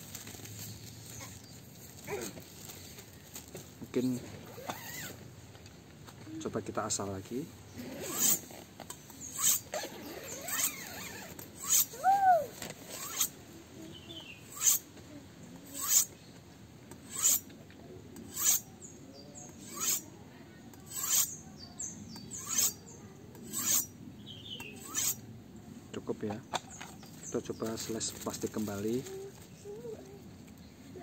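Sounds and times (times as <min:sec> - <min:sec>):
knife scraping on sharpening steel: 0:07.9 - 0:08.5, 0:09.2 - 0:11.9, 0:13.0 - 0:13.3, 0:14.5 - 0:14.8, 0:15.7 - 0:16.1, 0:17.0 - 0:17.5, 0:18.2 - 0:18.7, 0:19.6 - 0:20.1, 0:20.8 - 0:21.4, 0:22.3 - 0:23.9, 0:24.7 - 0:25.2.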